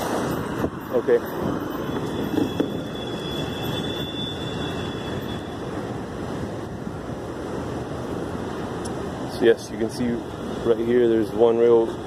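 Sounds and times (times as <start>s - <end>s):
wind on microphone: 0.0s - 9.2s
street traffic: 0.0s - 12.0s.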